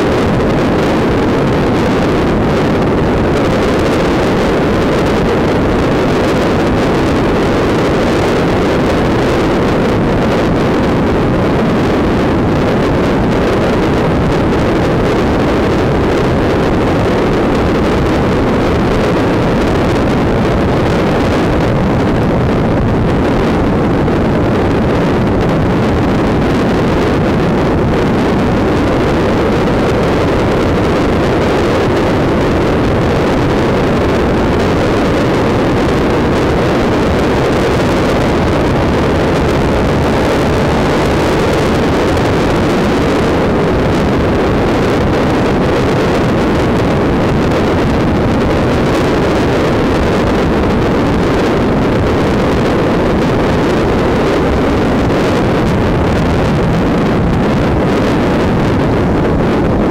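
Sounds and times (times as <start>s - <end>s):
motorcycle engine droning: 0.0s - 59.9s
wind rush over microphone: 0.0s - 59.9s.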